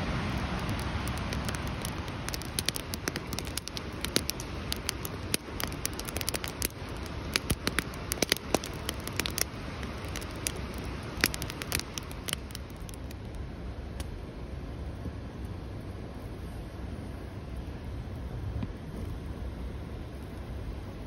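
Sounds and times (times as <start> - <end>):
campfire crackling: 0.0 - 14.2, 15.3 - 21.0
sharp pops and snaps of fire: 0.3 - 13.4, 14.0 - 14.2.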